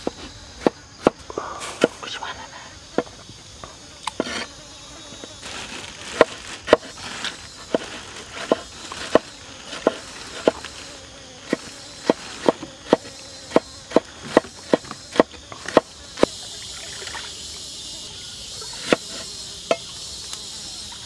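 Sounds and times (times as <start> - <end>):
knife chopping on wooden board: 7.7 - 10.6, 11.5 - 15.9, 18.8 - 19.8.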